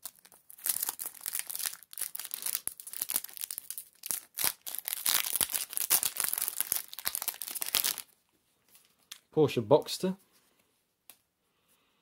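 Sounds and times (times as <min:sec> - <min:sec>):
wrapper crinkling and tearing: 0:00.0 - 0:08.2.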